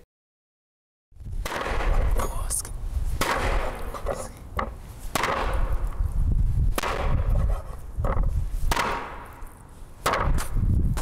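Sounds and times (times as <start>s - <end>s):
steady low rumble: 1.2s - 8.7s.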